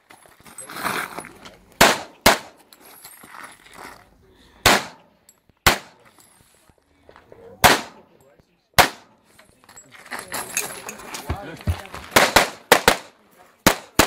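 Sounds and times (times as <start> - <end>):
handgun shots: 1.8 - 2.6, 4.6 - 6.0, 7.6 - 8.0, 8.8 - 9.1.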